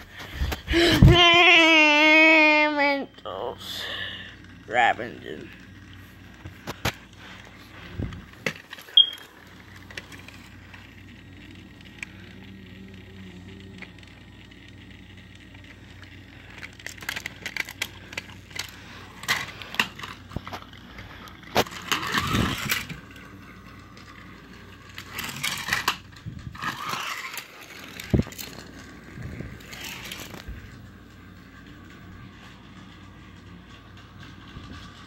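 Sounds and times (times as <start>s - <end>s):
toys scraping and rubbing: 3.6s - 35.0s
toys clicking and knocking: 15.6s - 30.9s.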